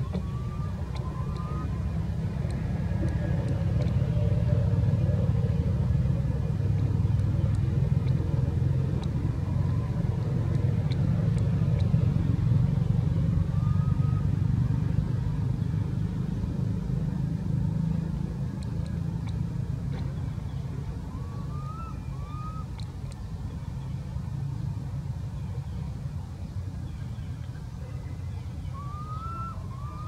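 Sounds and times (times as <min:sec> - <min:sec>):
rising squeak: 0:00.0 - 0:02.0
faint high chirps: 0:00.0 - 0:02.6
low rumble: 0:00.0 - 0:30.0.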